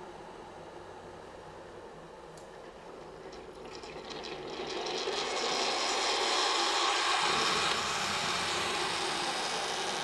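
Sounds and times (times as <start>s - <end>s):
water pouring into mug: 3.3s - 7.6s
hot water dispenser hissing: 3.6s - 10.0s.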